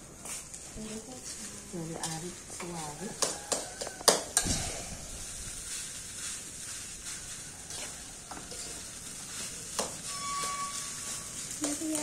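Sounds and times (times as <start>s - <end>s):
rice sizzling in a wok: 0.0s - 12.0s
spatula clinking against wok: 3.1s - 4.5s.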